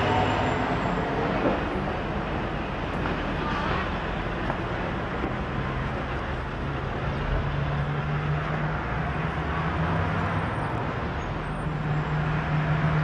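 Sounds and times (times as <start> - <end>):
road traffic with engine drone: 0.0 - 13.0.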